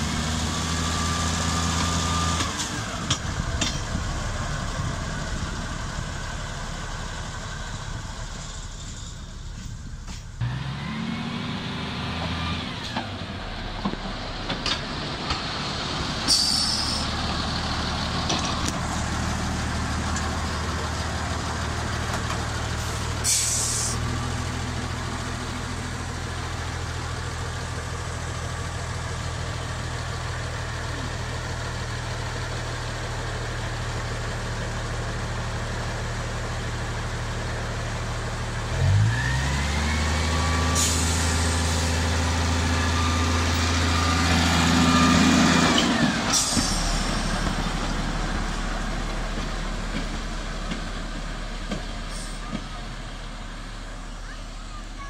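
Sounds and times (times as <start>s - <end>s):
diesel locomotive engine: 0.0s - 55.0s
air release hisses: 16.3s - 17.1s, 23.2s - 24.0s.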